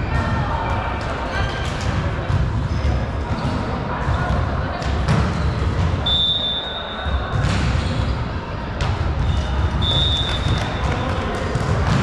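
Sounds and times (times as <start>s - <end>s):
sports hall rumble: 0.0s - 12.0s
referee's whistle: 6.0s - 7.1s, 9.3s - 10.9s
volleyball thump: 7.3s - 7.9s.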